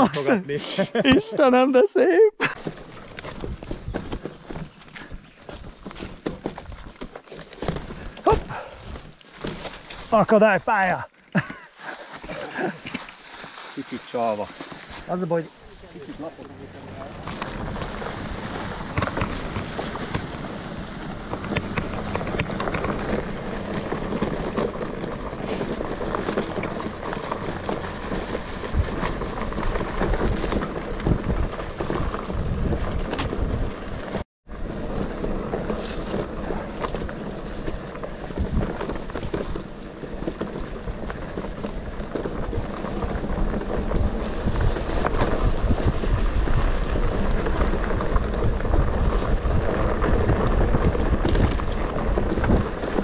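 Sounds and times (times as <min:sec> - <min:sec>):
bike knocks and rattles: 0:02.4 - 0:10.2, 0:16.0 - 0:53.0
bike tyres rumbling on dirt: 0:02.4 - 0:53.0
wind buffeting microphone: 0:17.1 - 0:34.2.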